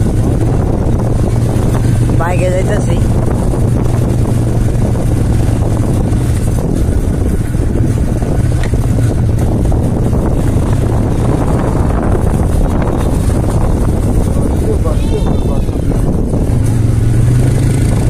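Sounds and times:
motorcycle engine running: 0:00.0 - 0:18.0
road and wind noise: 0:00.0 - 0:18.0.

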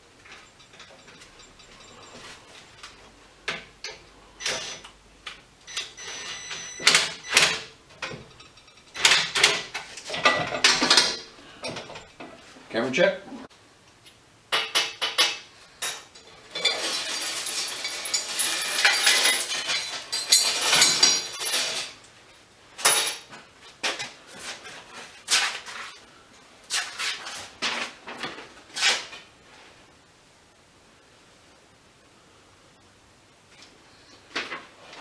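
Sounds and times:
metal parts clinking on workbench: 0:14.8 - 0:22.0.

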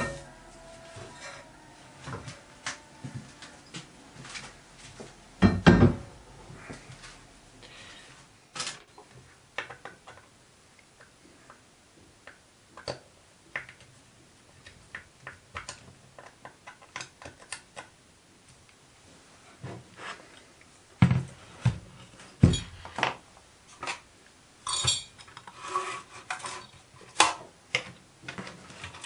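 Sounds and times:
parts being handled: 0:00.0 - 0:10.2
heavy thump: 0:05.0 - 0:06.9.

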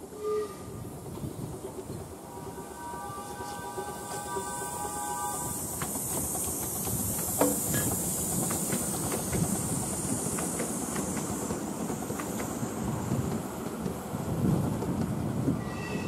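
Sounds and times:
steam hissing: 0:00.0 - 0:14.7
wheels clicking on track: 0:04.4 - 0:15.6.

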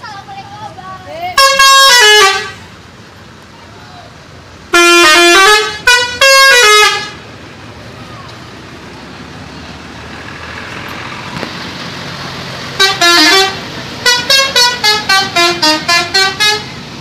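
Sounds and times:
traffic noise: 0:00.0 - 0:17.0
multi-tone musical bus horn: 0:01.3 - 0:02.7, 0:04.7 - 0:07.2, 0:12.8 - 0:16.8.

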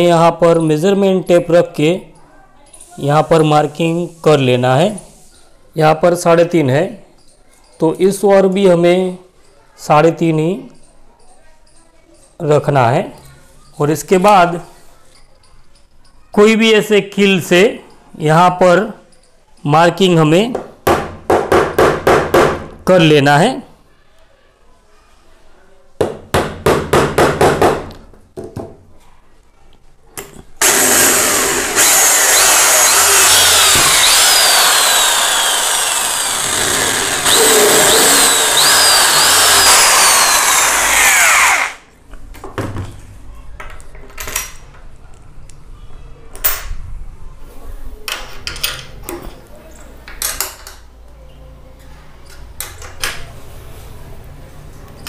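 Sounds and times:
electric drill boring wood: 0:30.6 - 0:41.8.

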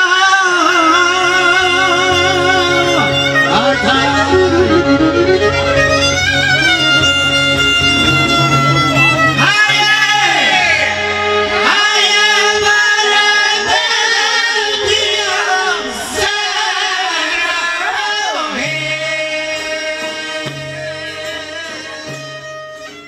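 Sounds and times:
accordion: 0:00.0 - 0:23.0
plucked strings: 0:01.3 - 0:13.7, 0:18.5 - 0:23.0
person singing ornamented melody: 0:09.5 - 0:22.4.

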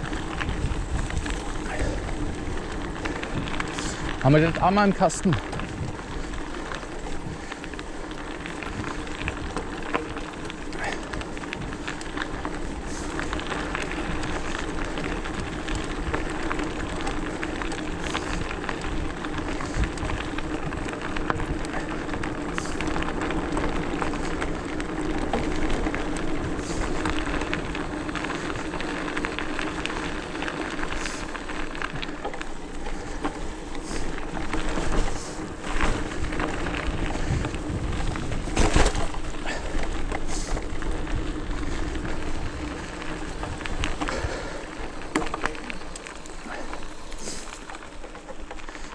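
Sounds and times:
tyres crackling over ground: 0:00.0 - 0:48.9
bike knocking over bumps: 0:32.0 - 0:42.1.

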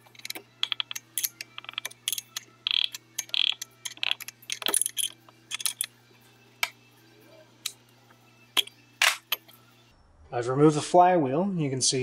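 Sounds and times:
wrench clinking on metal: 0:00.0 - 0:05.9.

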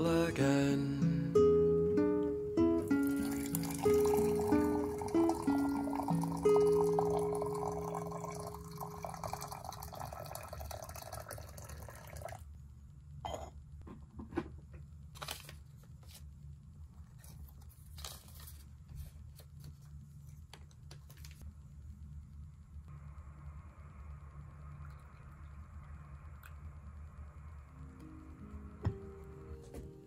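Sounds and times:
low steady hum: 0:00.0 - 0:30.0
hot water pouring into teapot: 0:02.9 - 0:12.5, 0:24.0 - 0:27.6.

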